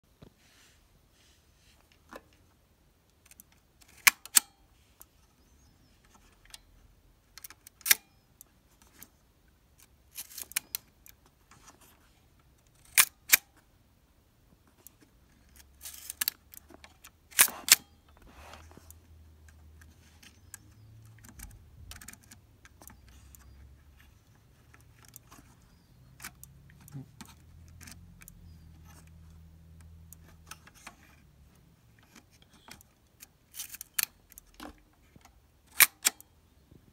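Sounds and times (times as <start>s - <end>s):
faint handling noise and ticks: 4.7s - 12.9s, 14.5s - 35.4s
camera shutter metallic clicks: 17.3s - 17.9s.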